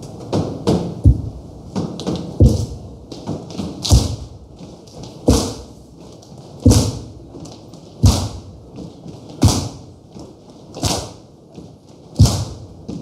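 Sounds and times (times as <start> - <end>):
slow rhythmic clapping in unison: 5.1 - 11.4, 12.1 - 13.0.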